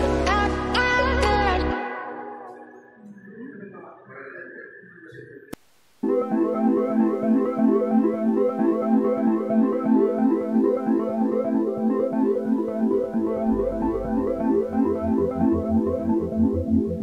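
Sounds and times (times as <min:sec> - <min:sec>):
repeating synthesizer notes: 0:06.0 - 0:17.0
low pulsing bass: 0:12.6 - 0:17.0.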